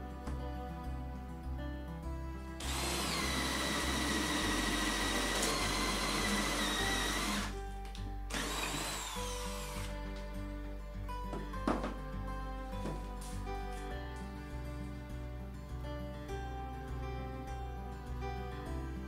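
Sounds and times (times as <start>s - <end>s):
electric drill boring through wood: 2.6s - 7.6s, 8.3s - 10.2s.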